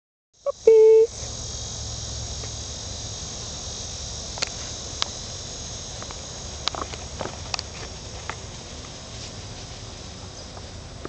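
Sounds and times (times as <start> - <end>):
crickets chirping: 0.4 - 11.0
loud flat beep: 0.5 - 1.1.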